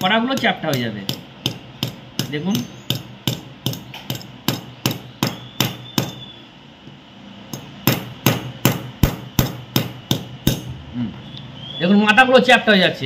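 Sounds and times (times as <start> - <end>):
small hammer tapping metal: 0.0 - 6.2, 7.5 - 10.7.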